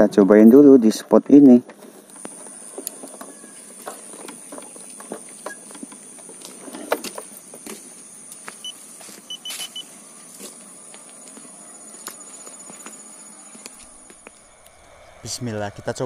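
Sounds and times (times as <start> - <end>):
steady high hiss: 2.0 - 16.0
footsteps on grass: 6.2 - 14.5.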